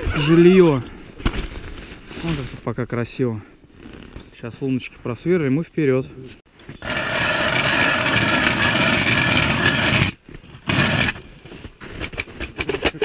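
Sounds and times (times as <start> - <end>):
ice auger grinding through ice: 6.8 - 11.2.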